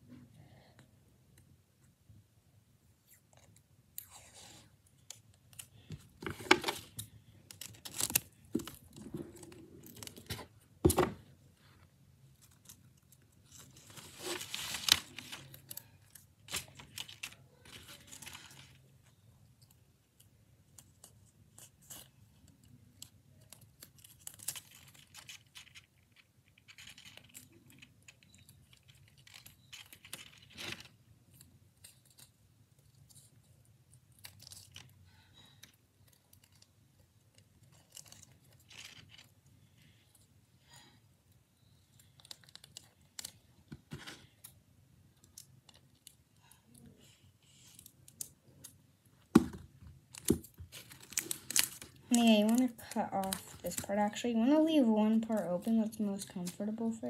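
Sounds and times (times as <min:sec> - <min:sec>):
paper rustling: 0:13.4 - 0:18.9, 0:49.4 - 0:54.3.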